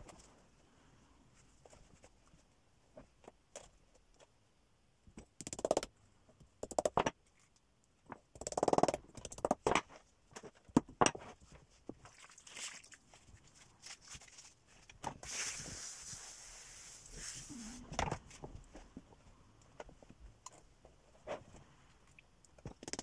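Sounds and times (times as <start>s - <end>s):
string rubbing over felt: 15.2s - 17.9s.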